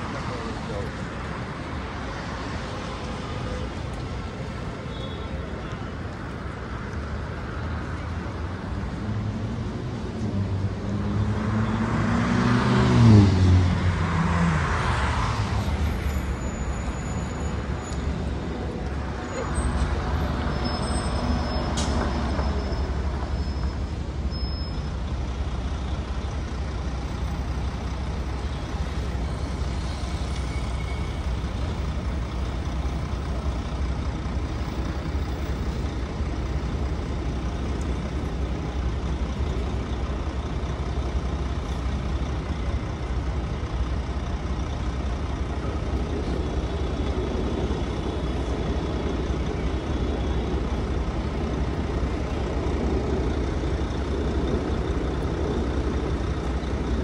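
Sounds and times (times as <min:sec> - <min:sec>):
heavy vehicles rumbling: 0:00.0 - 0:57.0
thin high squeal: 0:20.5 - 0:24.8.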